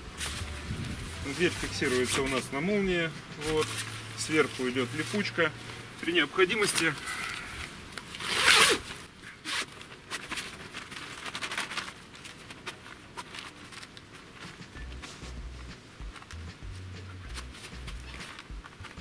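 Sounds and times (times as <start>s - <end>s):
fabric handling scratchy: 0.0s - 19.0s
zipper opening: 7.0s - 10.3s.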